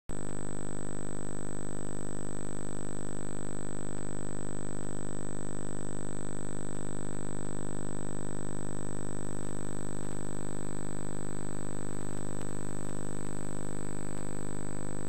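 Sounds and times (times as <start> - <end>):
electrical hum and buzz: 8.5 - 15.0.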